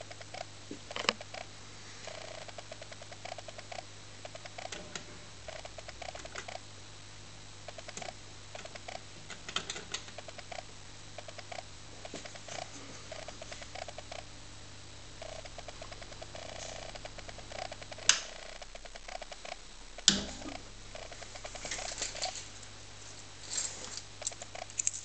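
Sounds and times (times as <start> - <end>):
electrical hum: 0.0 - 25.0
jukebox blips: 20.0 - 21.6.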